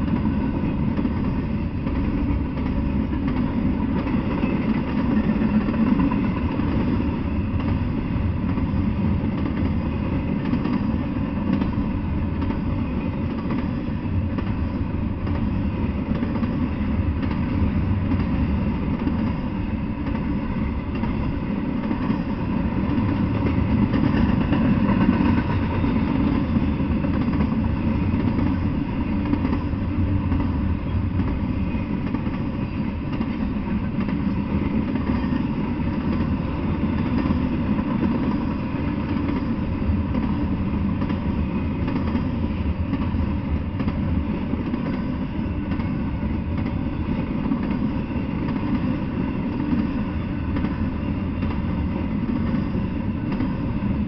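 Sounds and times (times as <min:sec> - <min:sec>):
freight train wheels rumbling: 0:00.0 - 0:54.0.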